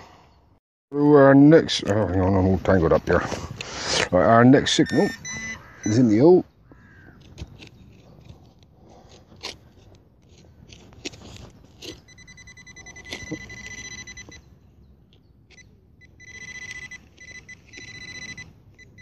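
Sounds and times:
probe scraping soil: 0:01.9 - 0:14.4, 0:15.1 - 0:19.0
fast high-pitched pulsing beep: 0:04.8 - 0:05.6, 0:12.1 - 0:14.4, 0:16.0 - 0:19.0.

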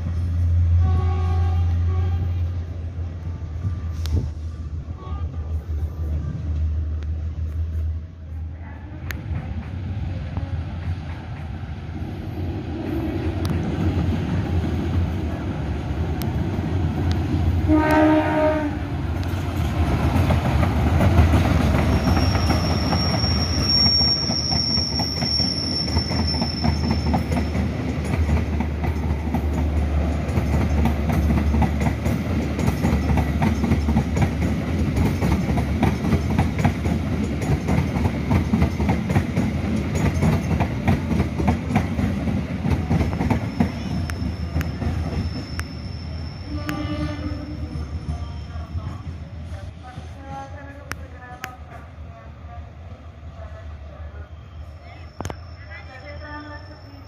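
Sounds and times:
diesel locomotive engine rumble: 0:00.0 - 0:57.0
train horn blast: 0:00.7 - 0:02.6, 0:17.6 - 0:19.0, 0:46.4 - 0:47.7
train wheels clickety-clack: 0:09.1 - 0:11.6, 0:19.1 - 0:45.8
thin high squeal: 0:21.9 - 0:27.5, 0:43.6 - 0:48.6.

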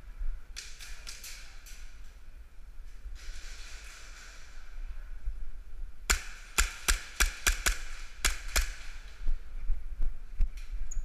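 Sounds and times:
airsoft pistol shots: 0:06.1 - 0:09.1.

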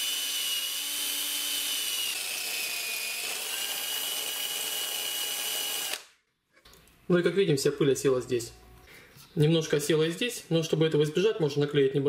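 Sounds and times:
cordless drill whining: 0:00.0 - 0:06.1.

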